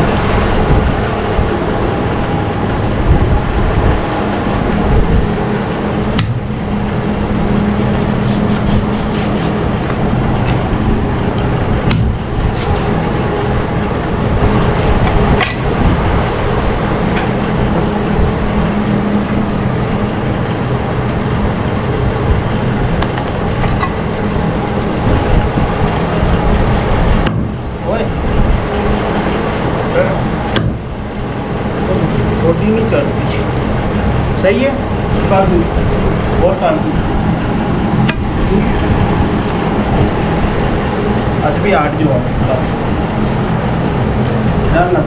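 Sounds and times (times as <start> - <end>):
mechanical drone: 0.0 - 45.0
sharp knocks: 6.2 - 6.5, 11.8 - 12.8, 30.5 - 30.9.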